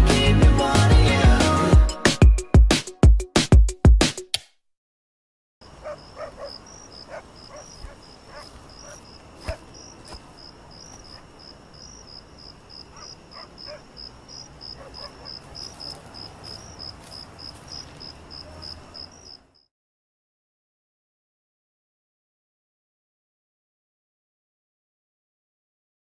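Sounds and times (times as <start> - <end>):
high-pitched insect chirping: 5.6 - 19.7.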